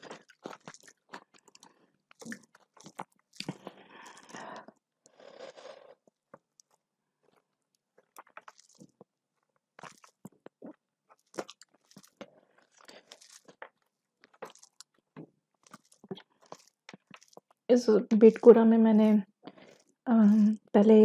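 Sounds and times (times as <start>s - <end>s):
person chewing food: 0.0s - 20.7s.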